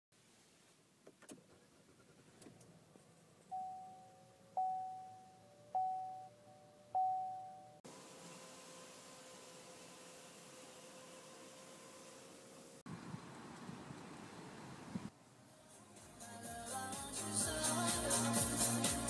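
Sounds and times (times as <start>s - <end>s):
dashboard warning chime: 3.5s - 7.8s.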